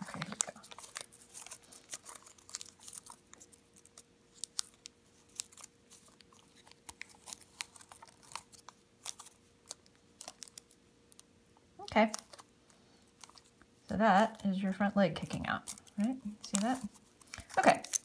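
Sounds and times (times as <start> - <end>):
paper crinkling while folded: 0.0 - 18.0.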